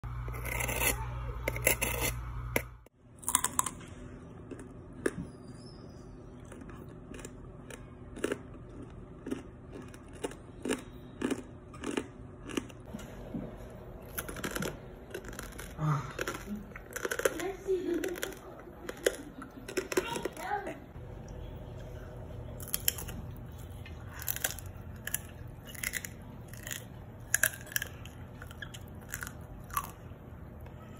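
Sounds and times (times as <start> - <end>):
low hum: 0.0 - 30.9
crunchy chewing: 0.1 - 5.6, 6.3 - 13.1, 13.7 - 20.4, 21.8 - 30.2
crunching fried pork skin: 14.1 - 20.2, 22.6 - 30.1.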